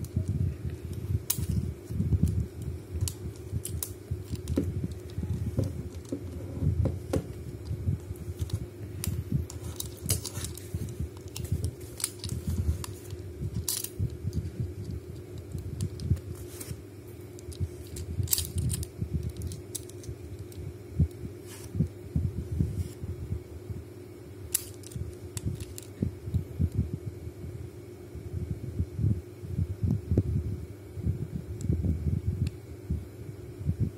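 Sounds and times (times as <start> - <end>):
steady hum: 0.0 - 33.9
padlock dial clicking and rattling: 17.4 - 20.6.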